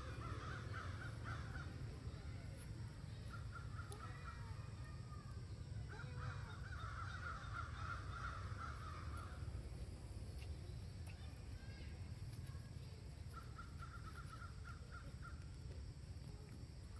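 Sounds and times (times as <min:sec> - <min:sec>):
steady low rumble: 0:06.7 - 0:16.9.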